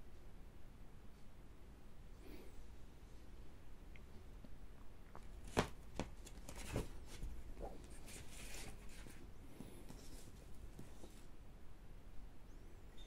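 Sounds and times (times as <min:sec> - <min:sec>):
paper sleeve rustling: 0:05.4 - 0:11.3.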